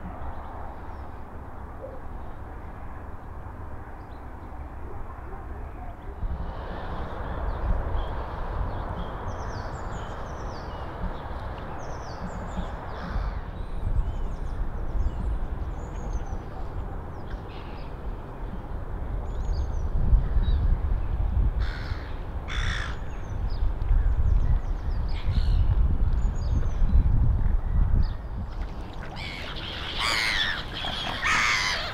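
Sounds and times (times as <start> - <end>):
harsh caw-like bird calls: 12.9 - 13.5, 21.6 - 23.1, 29.1 - 31.9
birds chirping: 28.0 - 31.9.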